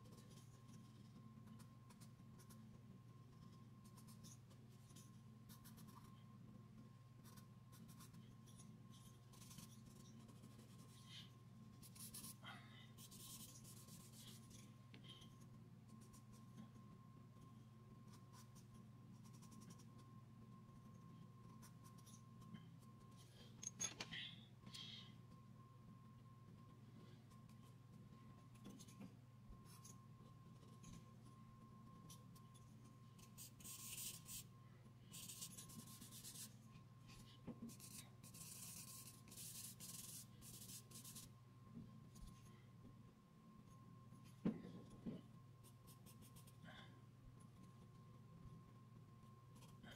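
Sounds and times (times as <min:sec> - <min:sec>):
charcoal pencil scratching paper: 0:00.0 - 0:06.2, 0:07.2 - 0:12.4, 0:13.0 - 0:20.1, 0:32.0 - 0:34.5, 0:35.1 - 0:41.3.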